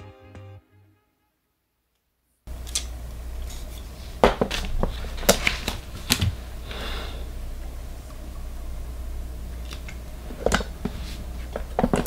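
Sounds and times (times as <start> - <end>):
steady low hum: 2.5 - 12.0.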